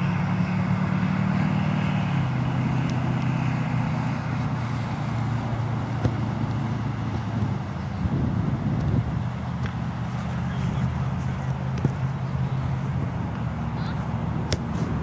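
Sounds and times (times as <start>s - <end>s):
vehicle engine humming: 0.0s - 15.0s
ball being kicked: 5.9s - 7.6s, 9.6s - 9.8s, 11.6s - 12.2s, 14.4s - 15.0s.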